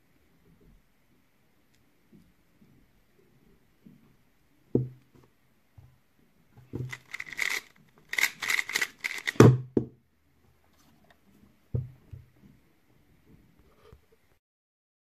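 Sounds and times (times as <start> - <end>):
puzzle cube clacking: 6.8 - 9.5.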